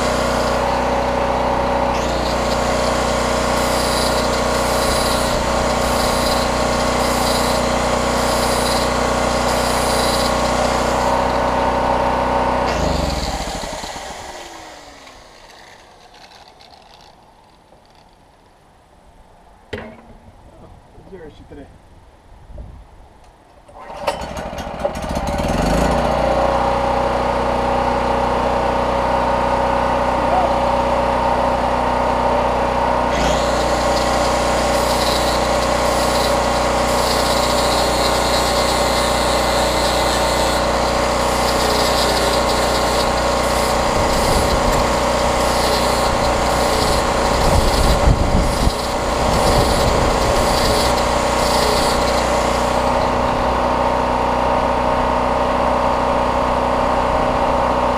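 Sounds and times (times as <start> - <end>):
generator engine running: 0.0 - 17.0, 23.8 - 57.9
rotary tool grinding metal: 0.0 - 18.2, 33.0 - 54.0.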